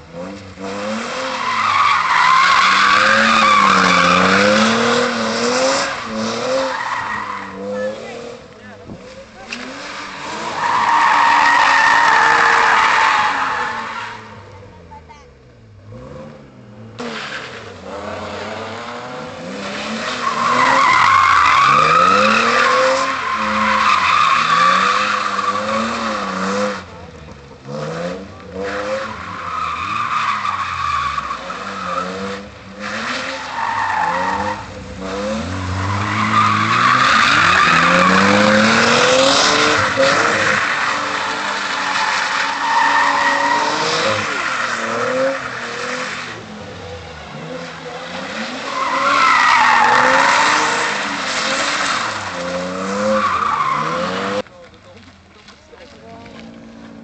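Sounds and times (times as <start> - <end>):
car engine revving: 0.0 - 57.0
tyres squealing: 1.3 - 8.1, 19.8 - 26.9, 28.6 - 46.6, 47.3 - 54.4.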